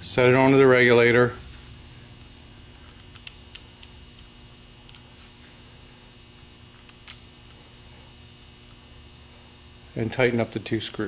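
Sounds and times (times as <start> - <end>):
faint steady hum: 0.0 - 11.0
small clicks of parts handled: 2.7 - 5.1, 6.7 - 7.8.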